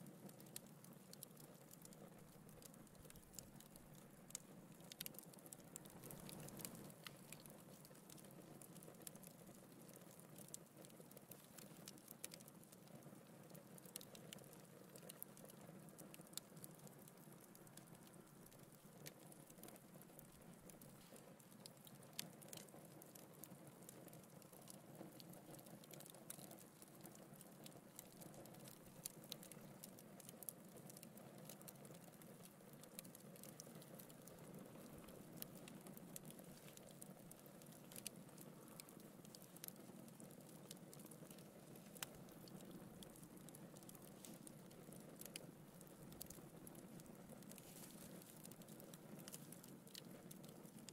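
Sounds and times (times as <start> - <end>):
wood fire crackling: 0.0 - 50.9.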